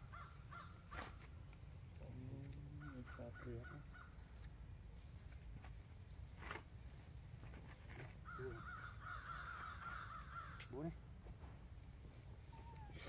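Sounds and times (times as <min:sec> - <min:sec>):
crow cawing: 0:00.0 - 0:01.2, 0:02.8 - 0:04.2, 0:08.2 - 0:10.9.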